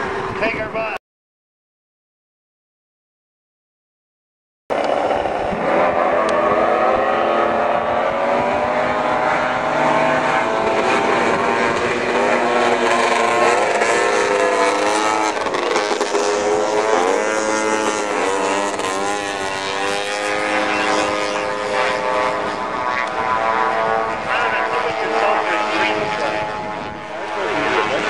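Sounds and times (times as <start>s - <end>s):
snowmobile engines whining: 4.7s - 28.0s.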